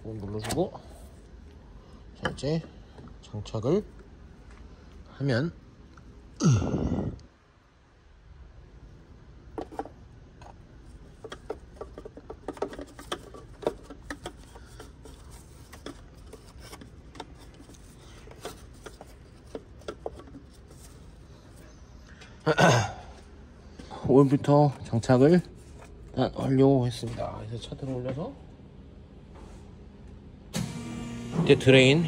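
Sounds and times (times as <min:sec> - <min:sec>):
plastic parts clicking and rubbing: 0:09.5 - 0:21.7.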